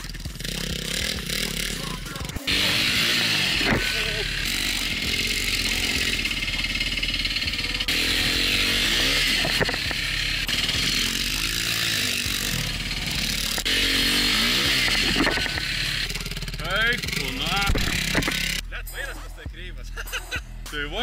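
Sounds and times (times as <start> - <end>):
motocross bike engine revving: 0.0 - 18.8.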